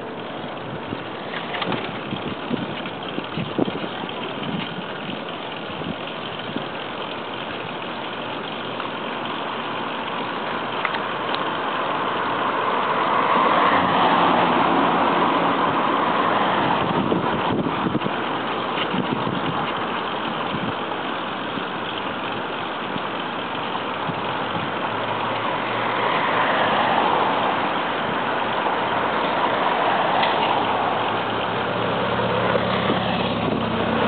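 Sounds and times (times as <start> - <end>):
street traffic: 0.0 - 34.0
motor vehicle passing: 11.2 - 18.1, 24.5 - 34.0.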